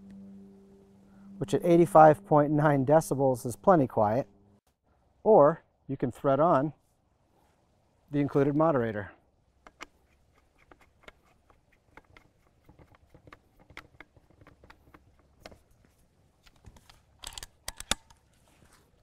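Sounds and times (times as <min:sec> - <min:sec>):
faint thread clicks and scrapes: 0:09.6 - 0:17.0
loud metal clicks: 0:16.7 - 0:18.2.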